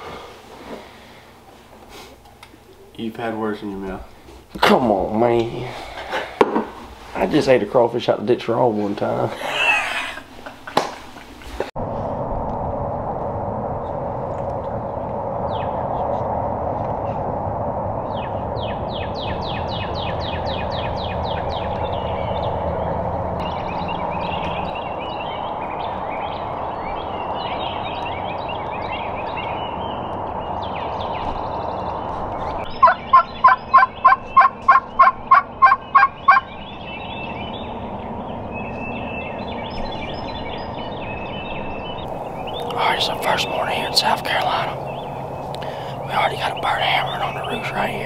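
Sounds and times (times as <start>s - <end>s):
small birds chirping: 18.0s - 48.0s
turkey call yelps: 32.8s - 36.5s.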